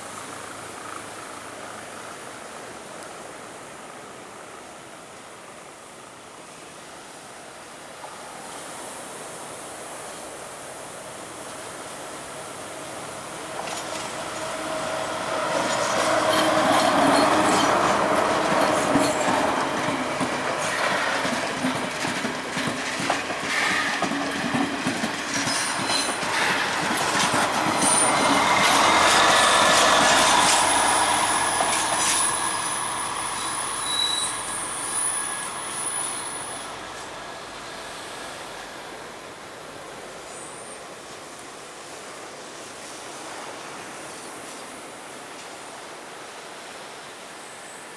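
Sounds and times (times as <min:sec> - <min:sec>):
high wheel squeal: 0:12.8 - 0:19.4, 0:27.8 - 0:38.4
train wheels clicking over rail joints: 0:13.0 - 0:37.1.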